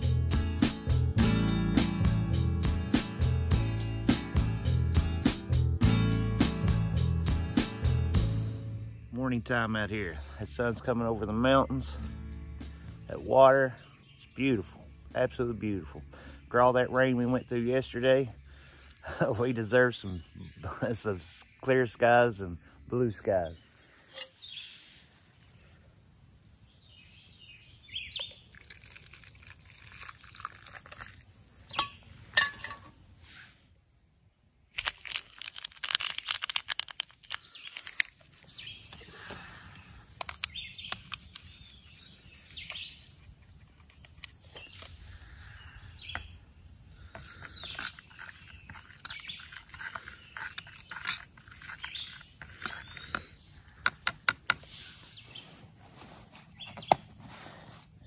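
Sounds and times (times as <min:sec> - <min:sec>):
insect drone: 0:06.5 - 0:58.0
birds chirping: 0:08.7 - 0:25.5, 0:26.7 - 0:29.5, 0:37.3 - 0:57.6
sharp clicking and crackling: 0:34.7 - 0:38.4.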